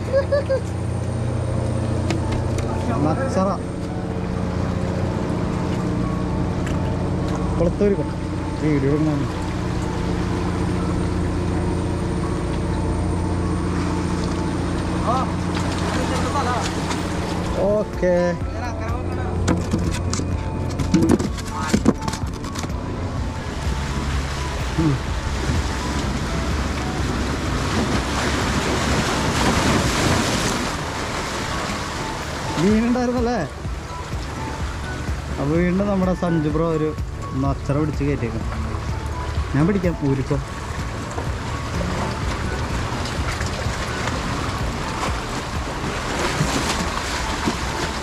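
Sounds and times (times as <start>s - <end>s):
sea waves washing against concrete: 23.8s - 35.4s, 39.4s - 48.0s.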